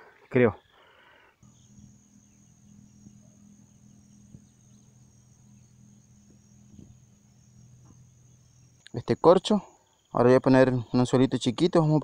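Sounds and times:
insects buzzing: 0.0 - 12.0
faint ticks: 1.4 - 9.0
low steady hum: 1.4 - 11.9.

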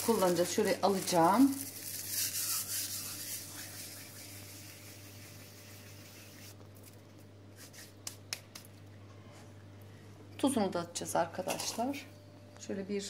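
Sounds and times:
dry leaves rustling between palms: 0.0 - 7.0.

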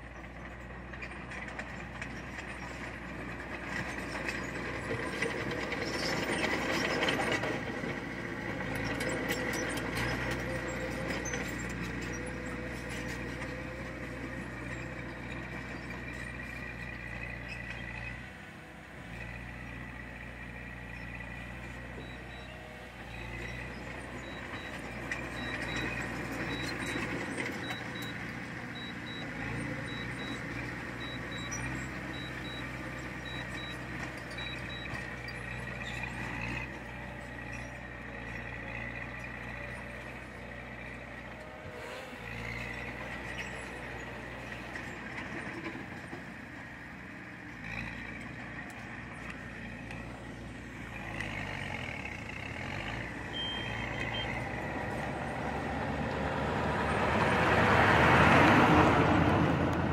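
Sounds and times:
diesel machinery engine drone: 0.0 - 59.9
faint regular beeps: 22.0 - 36.0, 53.3 - 54.4.

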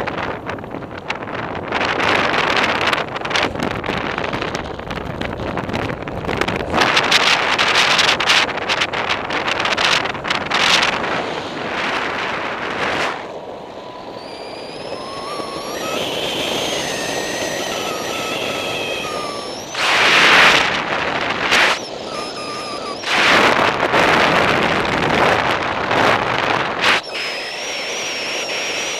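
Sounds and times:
wind rushing over microphone: 0.0 - 28.9
thin wavering whistle: 13.7 - 23.8, 26.8 - 28.9.

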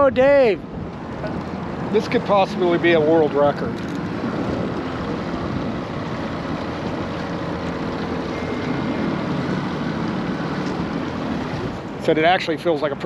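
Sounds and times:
wind on the microphone: 0.0 - 12.2
boat motor humming: 0.0 - 13.0
water noise: 0.0 - 13.0.

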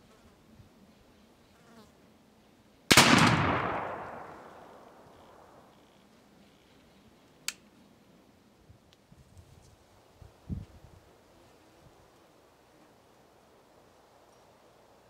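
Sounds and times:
shotgun blast with echo: 2.9 - 5.6.

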